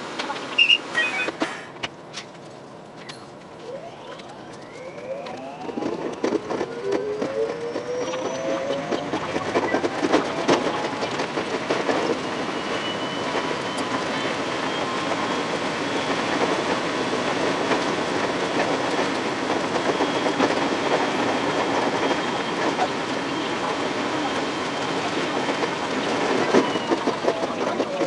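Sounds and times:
faint high whine: 3.6 - 7.1
train wheels clattering over rails: 5.6 - 28.0.

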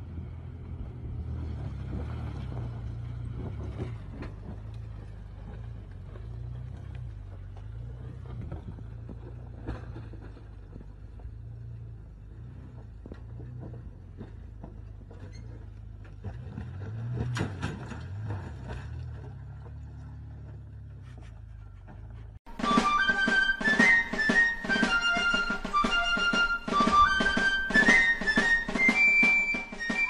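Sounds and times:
truck engine under load: 0.0 - 30.0
rocks crunching under tyres: 0.6 - 23.0.

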